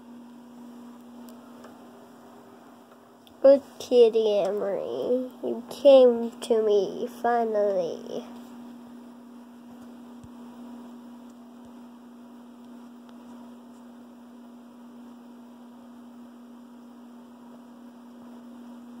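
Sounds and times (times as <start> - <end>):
steady electrical hum: 0.0 - 19.0.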